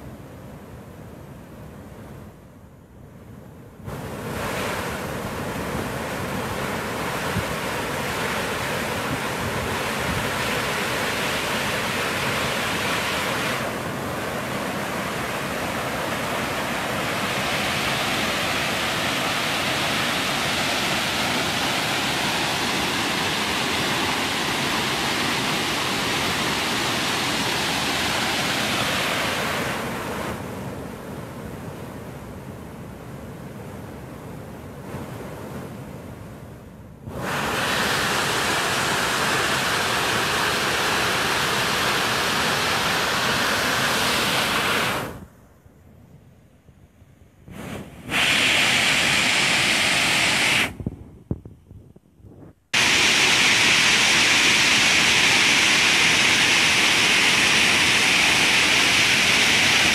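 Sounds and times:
waterfall rushing into pool: 0:03.9 - 0:30.4, 0:37.1 - 0:45.2, 0:47.6 - 0:50.8, 0:52.8 - 0:59.9.

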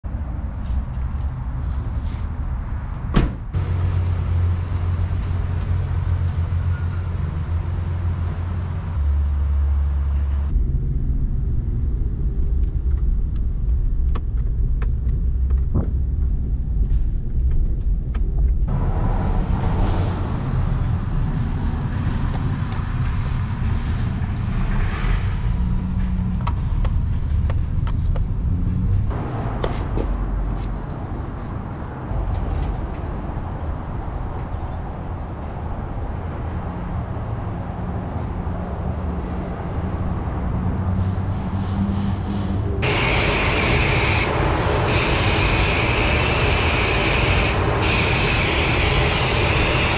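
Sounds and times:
truck engine and tyre hum: 0:00.0 - 0:49.9
truck door thumping shut: 0:03.1 - 0:03.5.

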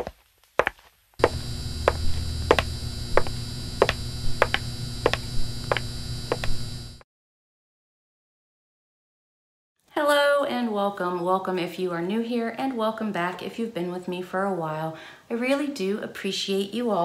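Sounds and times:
high-heel footsteps clicking: 0:00.0 - 0:06.6
electric neon sign buzz: 0:01.2 - 0:07.0.

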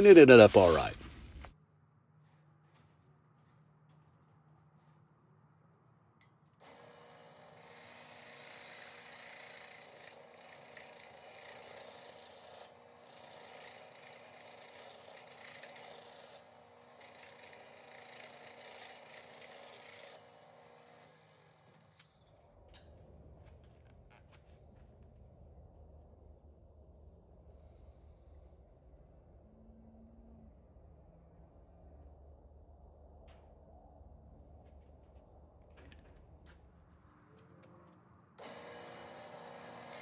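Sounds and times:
wood lathe motor: 0:06.6 - 0:22.0, 0:38.4 - 0:40.0
tool scraping spinning wood: 0:06.6 - 0:22.2, 0:38.4 - 0:40.0.

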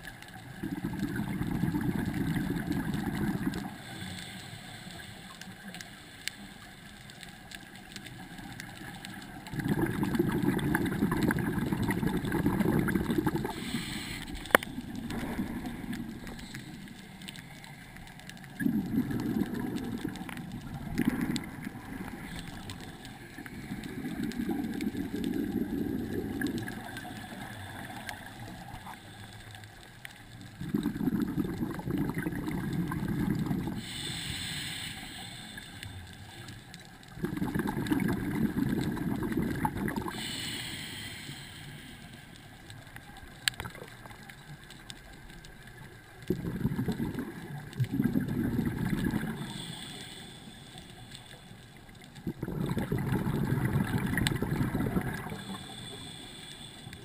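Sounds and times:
exhaled air bubbling underwater: 0:00.0 - 0:57.0
regulator inhalation hiss: 0:13.4 - 0:14.6, 0:33.7 - 0:36.7, 0:40.0 - 0:42.6, 0:49.2 - 0:51.7, 0:55.2 - 0:57.0.

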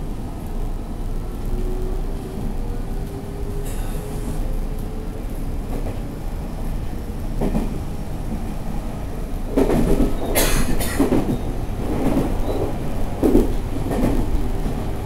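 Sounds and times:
train running rumble: 0:00.0 - 0:15.0
wheels thumping over rail joints: 0:09.5 - 0:14.9.

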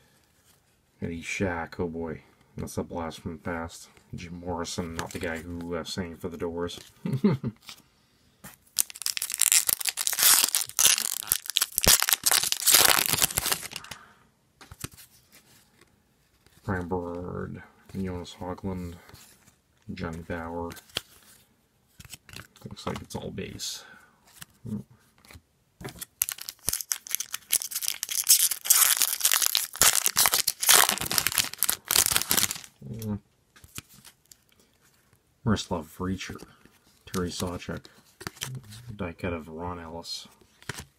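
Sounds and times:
foil wrapper crinkling: 0:08.8 - 0:14.0, 0:26.0 - 0:32.7.

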